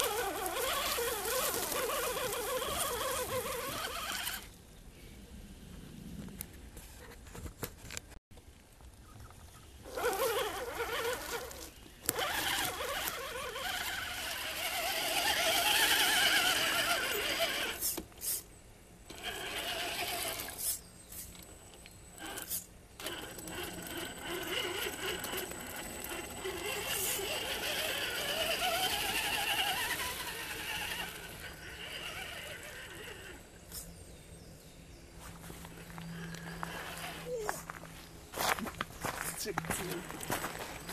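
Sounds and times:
electric toy car motors whining: 0:00.0 - 0:04.5, 0:09.8 - 0:18.4, 0:19.1 - 0:21.4, 0:22.1 - 0:34.0, 0:35.3 - 0:37.9.

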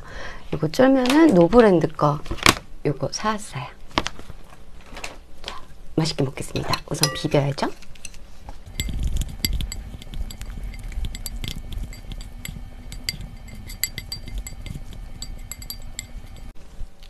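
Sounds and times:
chopsticks clicking against bowl: 0:08.8 - 0:16.5.

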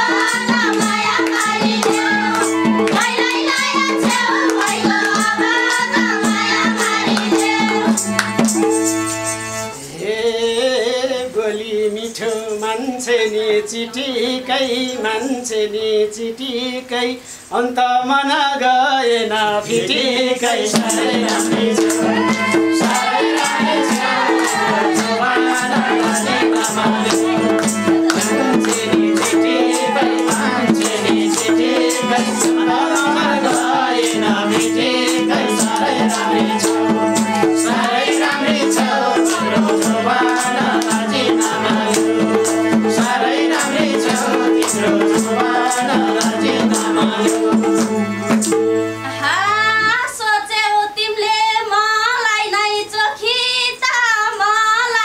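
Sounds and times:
hand drums fast rhythm: 0:00.0 - 0:09.3, 0:19.8 - 0:48.8
harmonium tones: 0:00.0 - 0:09.9, 0:20.7 - 0:50.1.

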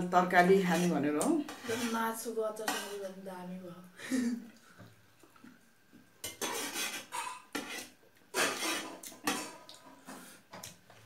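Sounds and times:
metal spoon scraping steel plate: 0:00.6 - 0:02.1, 0:06.2 - 0:09.5.

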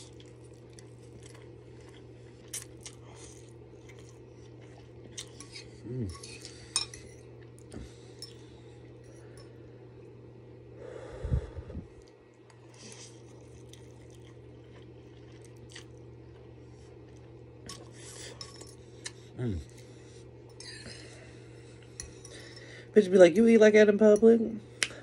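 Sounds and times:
chewing: 0:00.0 - 0:08.6, 0:12.0 - 0:21.0
steady low hum: 0:00.0 - 0:25.0.

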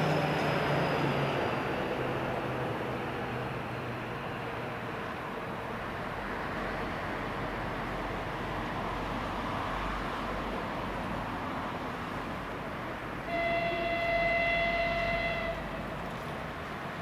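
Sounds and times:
diesel locomotive engine rumble: 0:00.0 - 0:17.0
locomotive horn blast: 0:13.2 - 0:15.8.

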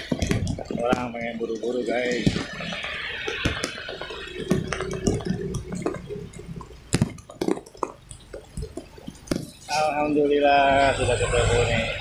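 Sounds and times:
sharp clicks and knocks: 0:00.0 - 0:09.7
rain water dripping: 0:00.0 - 0:12.0.

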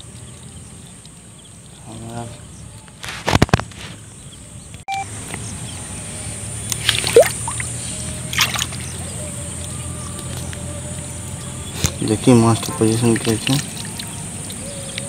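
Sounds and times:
water splashing and sloshing: 0:06.6 - 0:15.0.

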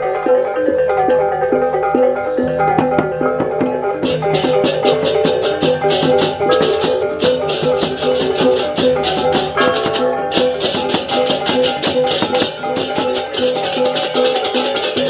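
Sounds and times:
pitched melody notes: 0:00.0 - 0:14.5
fast shaker rhythm: 0:04.0 - 0:15.0.

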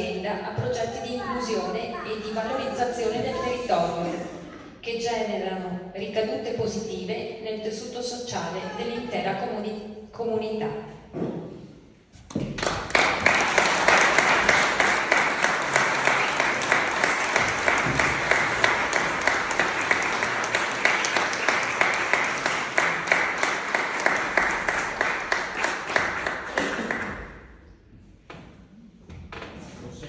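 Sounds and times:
audience applauding: 0:12.6 - 0:27.3.

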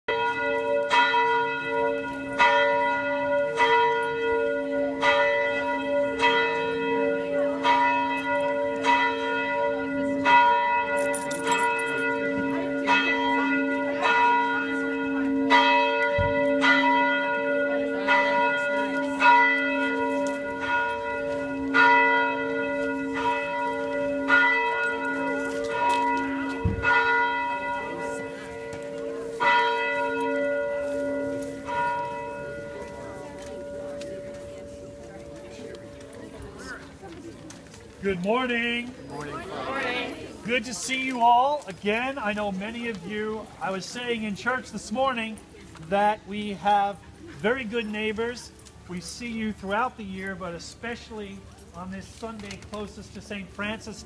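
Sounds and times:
church bell tolling: 0:00.1 - 0:36.7.

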